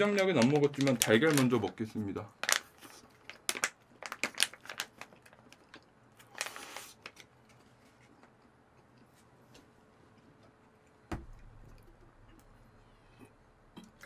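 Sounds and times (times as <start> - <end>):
plastic pouch crinkling: 0.0 - 7.6.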